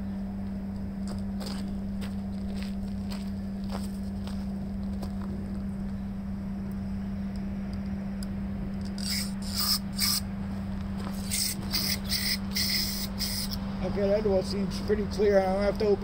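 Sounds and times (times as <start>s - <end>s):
steady low hum: 0.0s - 16.0s
aerosol spray hissing bursts: 11.2s - 13.6s.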